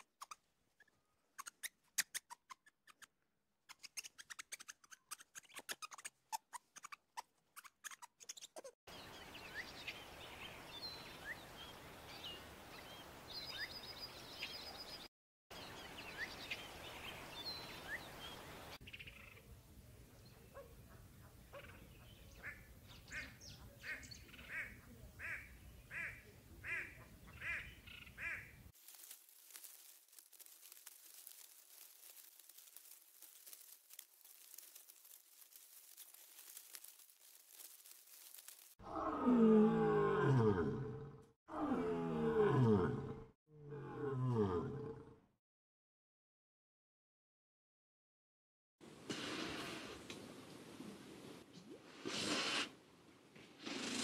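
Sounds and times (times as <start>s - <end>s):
duck quacks: 22.4s - 28.5s.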